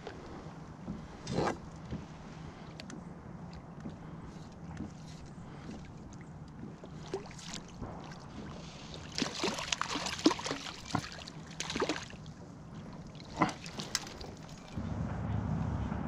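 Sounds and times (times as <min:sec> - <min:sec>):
water splashing around kayak: 0:00.0 - 0:14.8.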